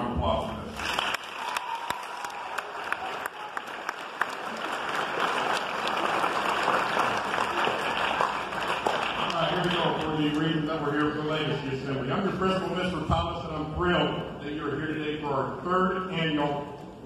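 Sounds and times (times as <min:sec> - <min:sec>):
audience applauding: 0:00.7 - 0:10.5.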